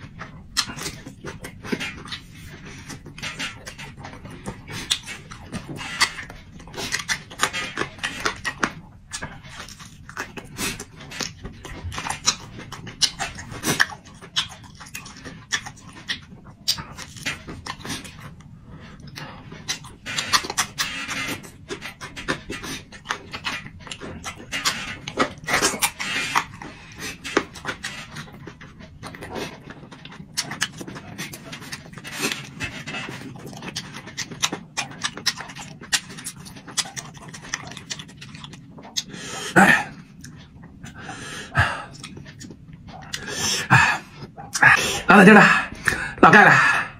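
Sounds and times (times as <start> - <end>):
man chewing with wet smacks: 0.0 - 46.5
breathing between bites: 40.9 - 42.0.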